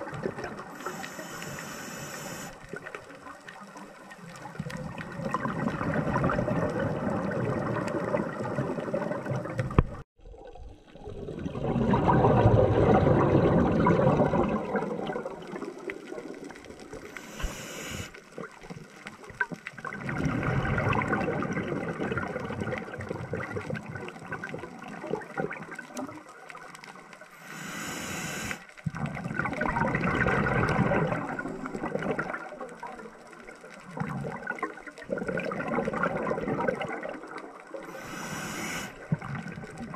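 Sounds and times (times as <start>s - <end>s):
gurgling exhaled bubbles: 0.0s - 18.8s, 19.4s - 26.7s, 28.1s - 39.9s
regulator inhalation hiss: 0.7s - 2.6s, 17.1s - 18.2s, 27.4s - 28.6s, 37.9s - 39.1s.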